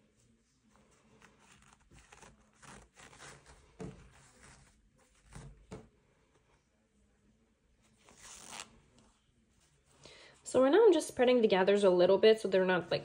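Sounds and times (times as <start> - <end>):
fabric rustling: 0.0 - 6.7, 7.8 - 10.5.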